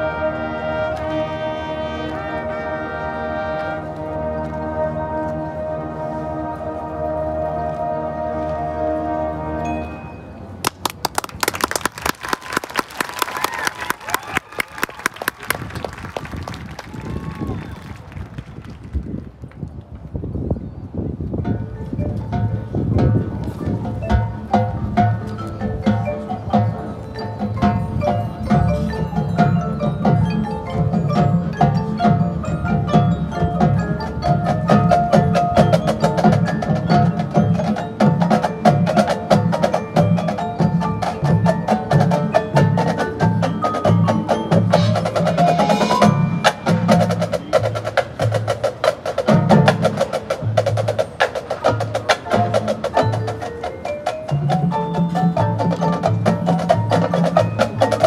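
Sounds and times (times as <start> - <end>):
marching band playing: 0.0 - 18.8, 21.4 - 58.0
mallet keyboards: 20.4 - 58.0
drums: 21.1 - 58.0.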